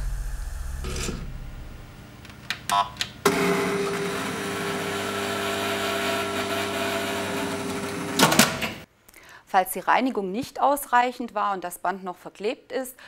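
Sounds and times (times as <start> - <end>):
tape machine motor hum: 0.1 - 8.8.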